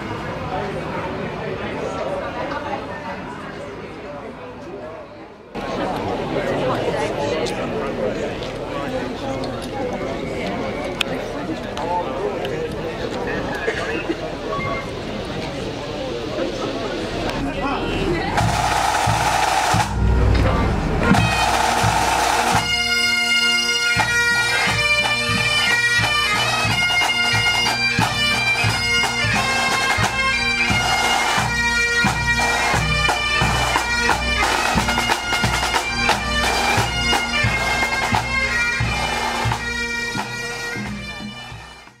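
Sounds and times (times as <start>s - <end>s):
bagpipes playing: 17.7s - 42.0s
snare and bass drums: 18.4s - 22.7s.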